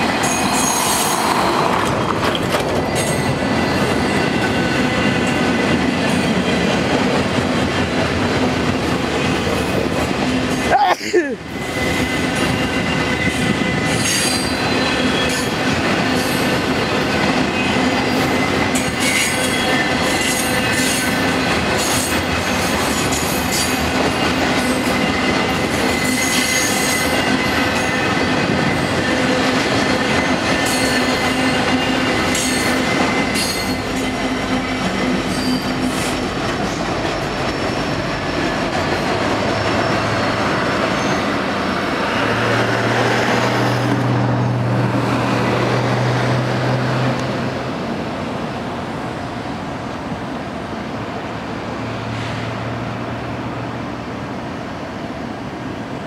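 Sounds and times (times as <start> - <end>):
steel wheels squealing on rails: 0.0 - 8.2, 9.0 - 47.4, 51.8 - 52.8
clatter over rail joints: 0.0 - 10.1
freight train cars rolling: 0.0 - 56.0.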